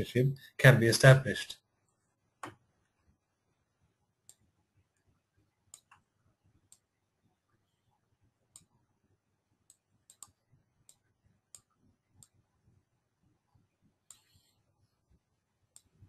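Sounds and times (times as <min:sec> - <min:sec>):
computer mouse clicks: 0:05.7 - 0:06.1, 0:06.7 - 0:06.9, 0:08.5 - 0:08.7, 0:09.7 - 0:12.4, 0:14.1 - 0:14.4, 0:15.7 - 0:16.0.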